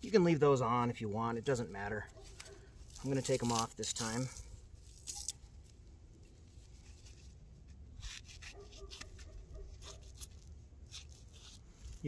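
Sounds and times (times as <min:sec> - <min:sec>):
knife scratching meat: 0:08.0 - 0:12.0.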